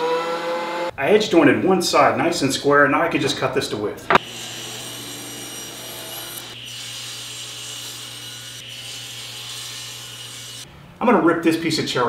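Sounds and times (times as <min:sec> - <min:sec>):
table saw motor hum: 0:04.2 - 0:10.6.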